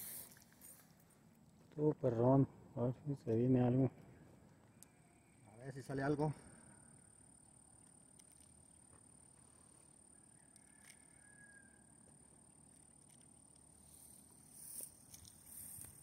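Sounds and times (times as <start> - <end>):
faint outdoor ambience by water: 0.0 - 3.8.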